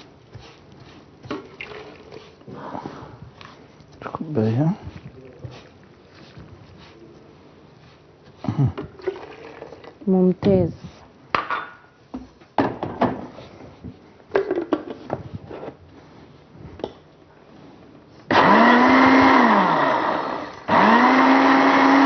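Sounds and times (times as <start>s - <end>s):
blender motor whining: 18.3s - 22.0s.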